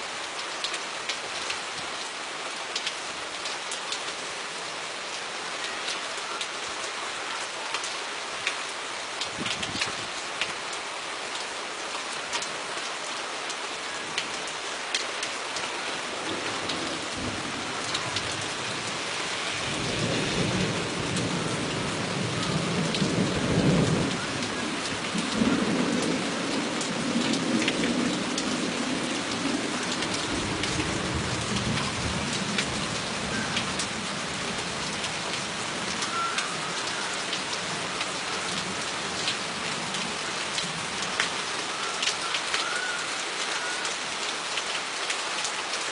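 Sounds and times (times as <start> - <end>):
steady rain: 0.0 - 45.9
thunder rolling: 17.0 - 24.0.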